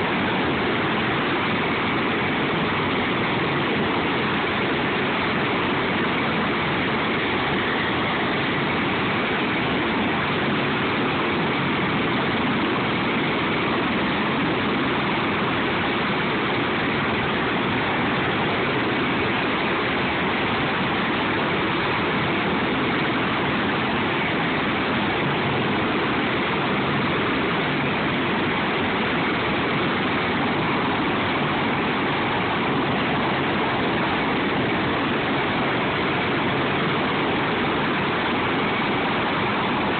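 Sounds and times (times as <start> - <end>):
helicopter turbine and rotor noise: 0.0 - 39.9.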